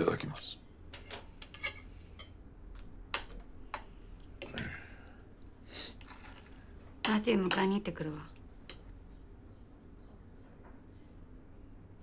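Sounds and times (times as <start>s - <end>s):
cutlery scraping: 1.0s - 2.4s.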